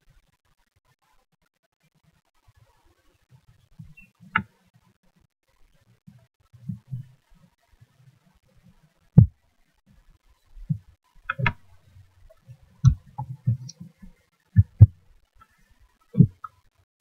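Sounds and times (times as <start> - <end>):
mouse and keyboard clicks: 11.3 - 13.8.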